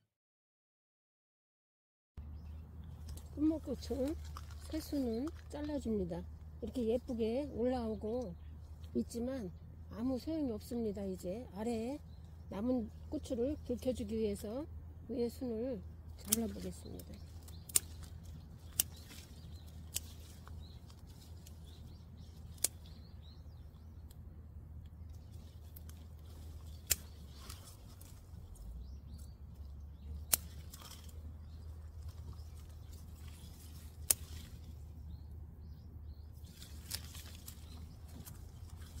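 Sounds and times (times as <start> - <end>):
scissors snipping plants: 2.9 - 7.1, 16.2 - 23.1, 24.8 - 34.8, 36.4 - 39.0.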